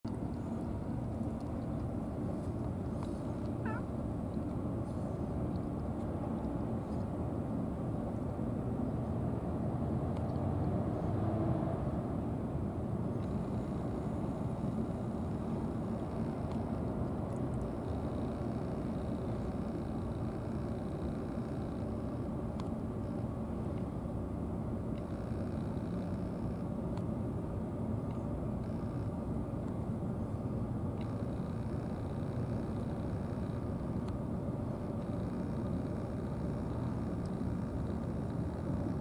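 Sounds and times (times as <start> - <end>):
low outdoor rumble: 0.1 - 39.0
cat meowing: 3.5 - 3.9.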